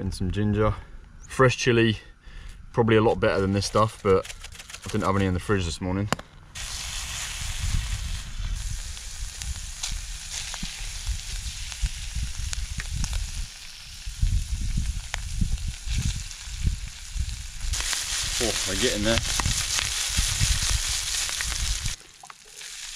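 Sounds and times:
oil sizzling in frying pan: 0:06.6 - 0:22.9.

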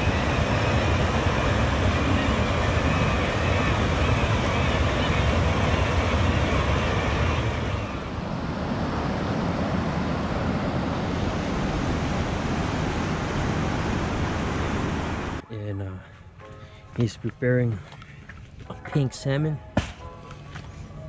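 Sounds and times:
river water rushing over weir: 0:00.0 - 0:15.4.

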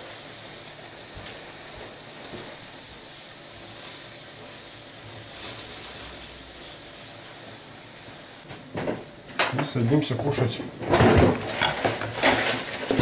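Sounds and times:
meat sizzling in a frying pan: 0:00.0 - 0:08.5, 0:11.4 - 0:13.0
plastic bag crinkling: 0:03.6 - 0:06.8, 0:11.5 - 0:13.0.

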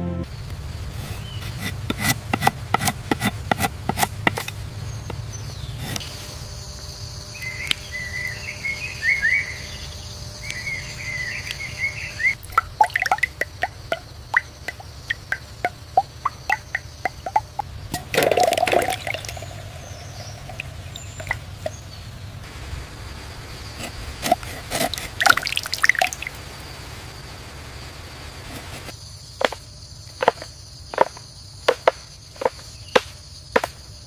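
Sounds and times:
high insect hum: 0:00.0 - 0:34.0
birds chirping: 0:00.3 - 0:26.5
liquid dripping: 0:12.4 - 0:21.8, 0:24.8 - 0:26.4.

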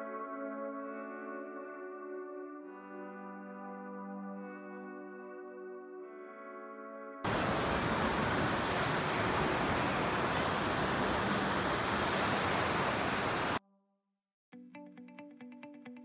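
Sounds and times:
surf breaking on beach: 0:07.3 - 0:13.6.

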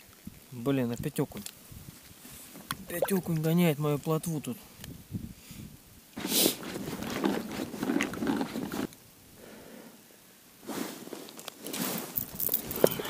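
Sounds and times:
rustling of padded suit: 0:06.2 - 0:08.9, 0:10.6 - 0:13.0.

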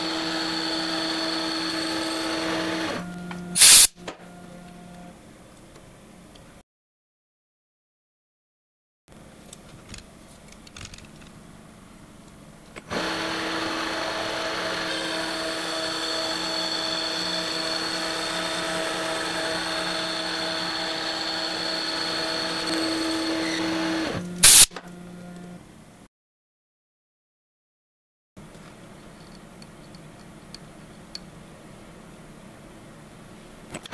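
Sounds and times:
metal lathe whining: 0:00.0 - 0:03.0, 0:12.9 - 0:24.2.

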